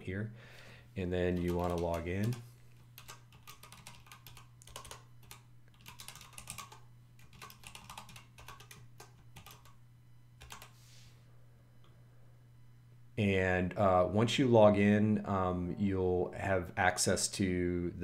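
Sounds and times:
faint low hum: 0:00.0 - 0:18.0
typing on a computer keyboard: 0:01.3 - 0:02.4, 0:03.0 - 0:09.8, 0:10.4 - 0:10.8.

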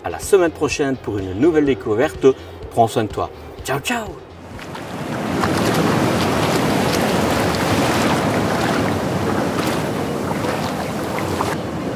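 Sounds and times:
wind: 0:00.0 - 0:11.9
sea waves washing: 0:04.4 - 0:11.9.

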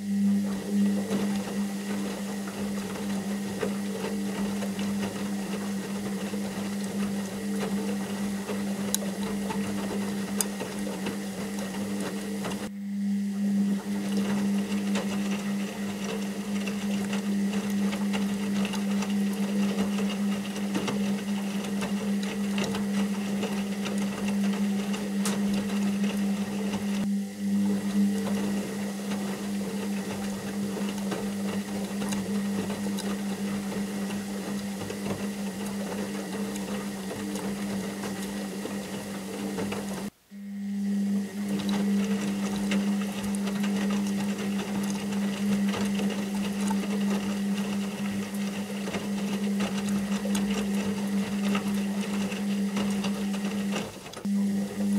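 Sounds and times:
mechanical whir: 0:00.0 - 0:54.9
washing machine motor hum: 0:00.0 - 0:54.9.

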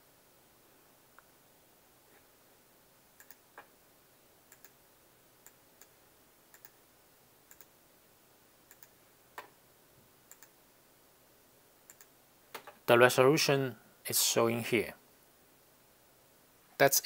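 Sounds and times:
low room hiss: 0:00.0 - 0:17.0
computer mouse clicks: 0:03.2 - 0:03.7, 0:04.5 - 0:04.8, 0:05.4 - 0:06.8, 0:07.5 - 0:07.7, 0:08.7 - 0:09.5, 0:10.3 - 0:10.6, 0:11.9 - 0:12.8.

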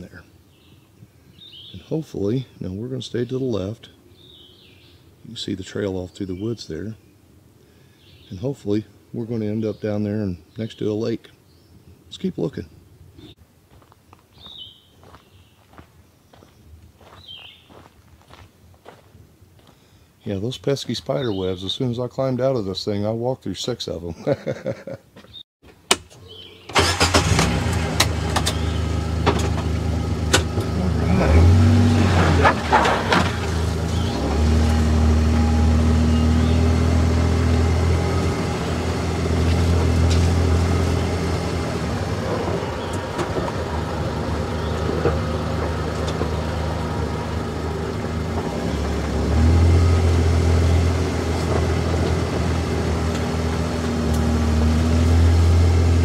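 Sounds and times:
vehicle engine running: 0:26.7 - 0:56.0.

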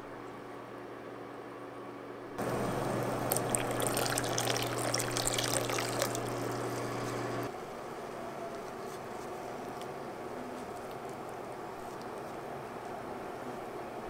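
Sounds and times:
low steady hum: 0:00.0 - 0:14.0
water boiling in a pot: 0:02.4 - 0:07.9
water pouring and splashing: 0:02.6 - 0:07.5.

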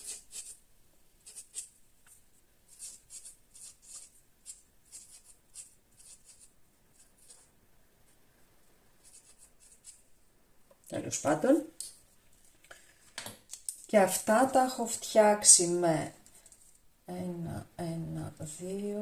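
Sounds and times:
marker pen scratching on tape: 0:00.0 - 0:00.6, 0:01.2 - 0:01.8, 0:02.7 - 0:07.5, 0:09.0 - 0:10.0.

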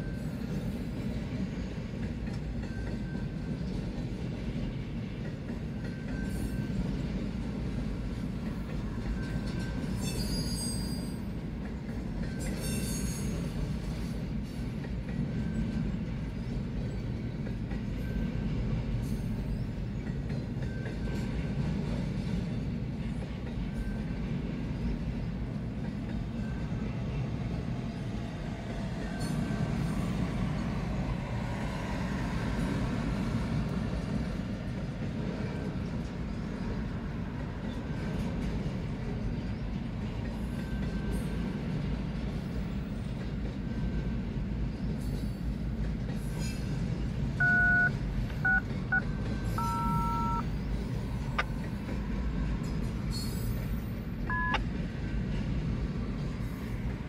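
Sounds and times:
freight train wheels rumbling: 0:00.0 - 0:57.0
short electronic beeps: 0:47.4 - 0:49.0, 0:49.6 - 0:50.5, 0:54.3 - 0:54.6.

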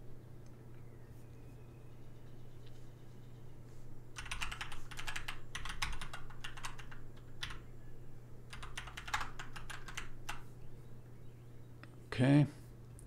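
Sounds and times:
typing on a keyboard: 0:04.2 - 0:07.6, 0:08.5 - 0:10.5.

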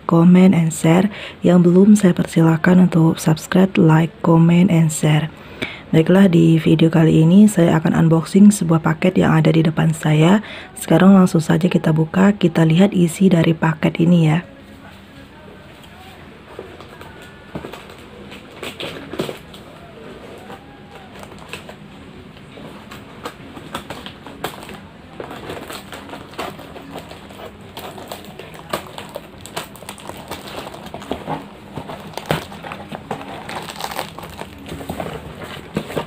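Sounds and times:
packaging crackling and tearing: 0:16.8 - 0:21.8, 0:22.6 - 0:36.0.

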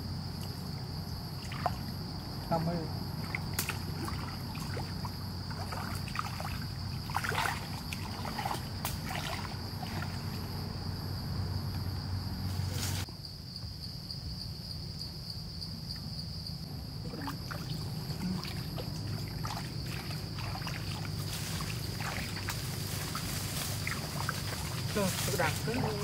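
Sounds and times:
water sloshing and splashing: 0:01.3 - 0:02.1, 0:03.1 - 0:10.7, 0:17.0 - 0:26.0.

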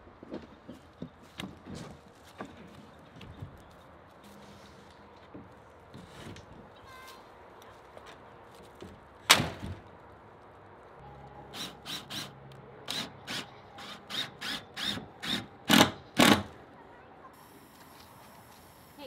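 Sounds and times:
cordless drill boring into wood: 0:12.9 - 0:16.5.

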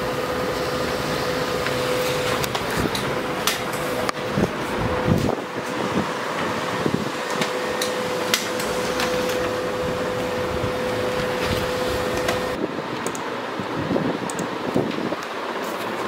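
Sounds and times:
laser printer humming: 0:00.0 - 0:16.0
paper feed clicks: 0:01.6 - 0:05.8, 0:07.2 - 0:09.6, 0:10.8 - 0:13.3.

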